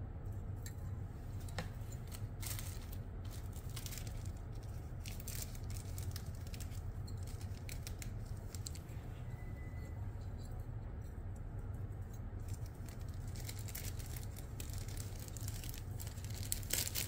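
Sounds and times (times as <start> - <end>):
steady low hum: 0.0 - 17.0
plastic sprues and bags rustling: 1.8 - 8.9, 12.4 - 17.0.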